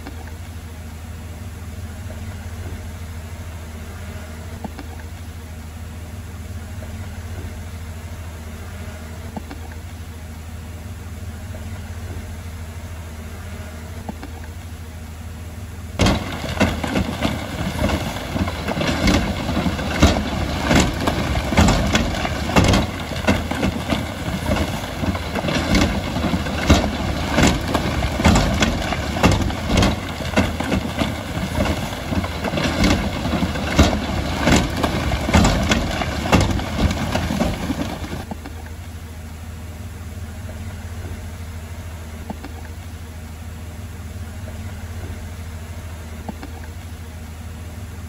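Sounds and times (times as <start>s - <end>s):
bulldozer diesel engine: 0.0s - 48.0s
clanks and knocks: 16.0s - 38.3s.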